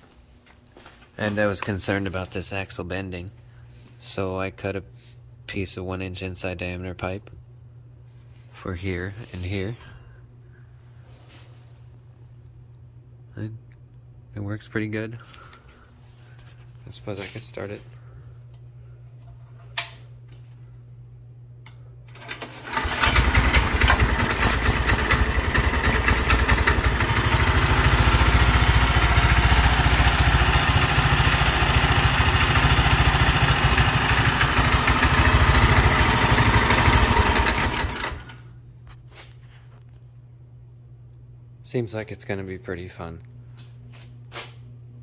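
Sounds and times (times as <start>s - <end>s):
small engine running: 22.2s - 38.4s.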